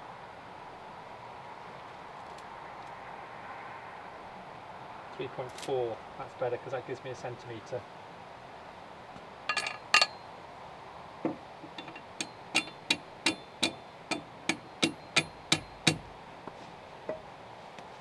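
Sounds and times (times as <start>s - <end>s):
hammer blows with metallic ring: 11.8s - 16.1s.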